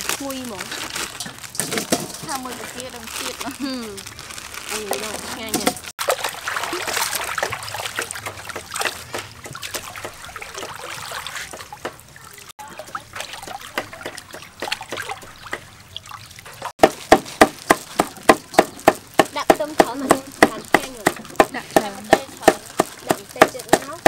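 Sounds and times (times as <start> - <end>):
hands swishing sprouts in water: 0.0 - 12.1, 16.0 - 24.0
water dripping and trickling: 0.0 - 24.0
cleaver striking chopping board: 16.8 - 24.0.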